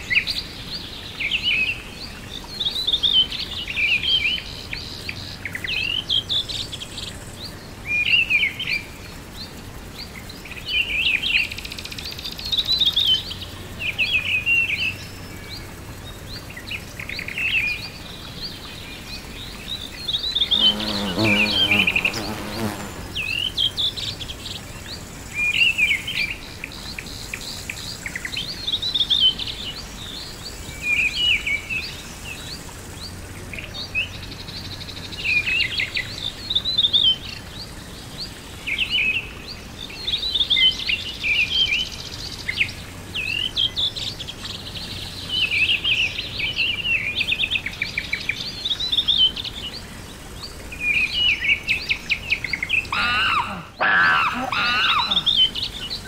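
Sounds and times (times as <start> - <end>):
songbirds chirping: 0.0 - 56.0
steady outdoor hiss: 0.0 - 56.0
insect buzzing: 20.2 - 24.4, 52.9 - 55.4.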